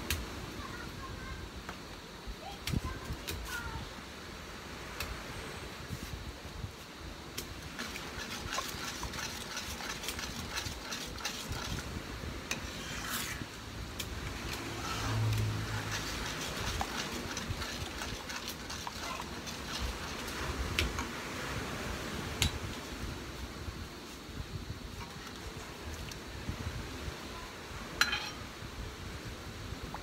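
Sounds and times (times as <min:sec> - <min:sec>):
metal spoon stirring syrup: 0:07.8 - 0:11.8, 0:14.5 - 0:20.3.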